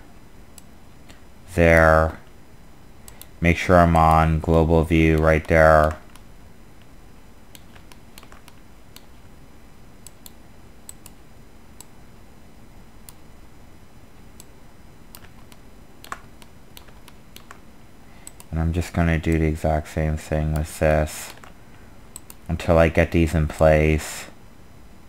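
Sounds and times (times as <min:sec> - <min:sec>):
faint steady hiss: 0:00.0 - 0:25.0
computer mouse and keyboard clicks: 0:07.5 - 0:09.1, 0:15.2 - 0:17.6.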